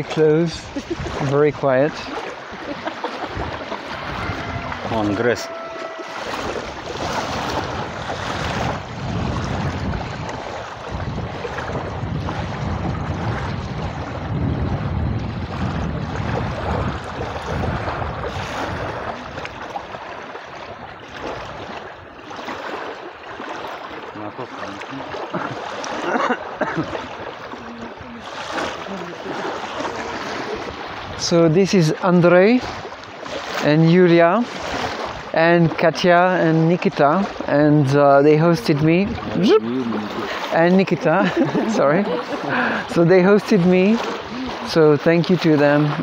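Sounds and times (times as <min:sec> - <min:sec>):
small waves lapping at shore: 0:00.0 - 0:46.0.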